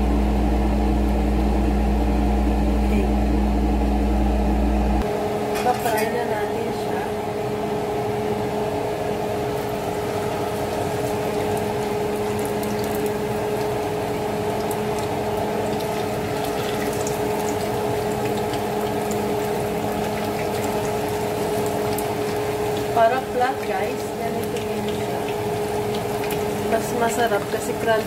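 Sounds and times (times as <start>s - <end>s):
steady machine hum: 0.0s - 28.0s
oil sizzling in a frying pan: 8.7s - 28.0s.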